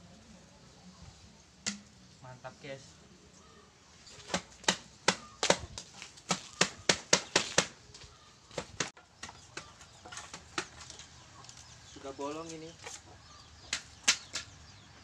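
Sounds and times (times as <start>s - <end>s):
rod knocking inside bamboo pole: 1.6s - 2.0s.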